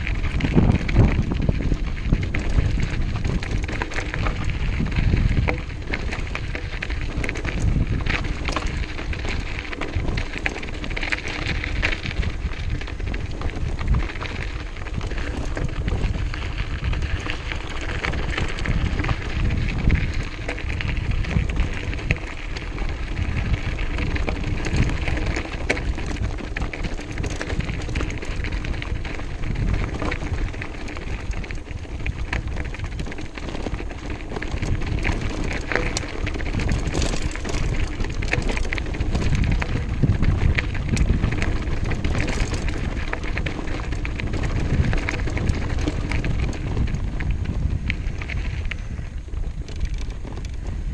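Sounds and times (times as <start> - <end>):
bike rattling: 0.0 - 50.9
bike tyres crunching on gravel: 0.0 - 50.9
wind rumble on microphone: 0.0 - 50.9.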